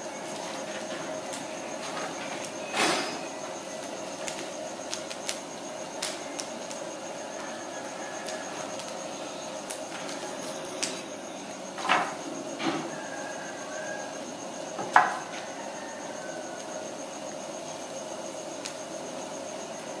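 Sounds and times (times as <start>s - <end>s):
wood fire crackling: 0.0s - 12.3s, 17.8s - 20.0s
fire popping: 0.3s - 11.1s.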